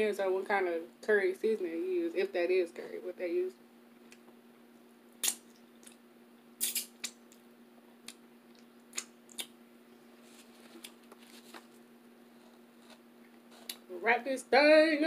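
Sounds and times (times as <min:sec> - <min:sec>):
faint steady hum: 0:00.0 - 0:15.0
wet mouth smacks: 0:05.2 - 0:06.0, 0:06.6 - 0:07.4, 0:08.1 - 0:09.6.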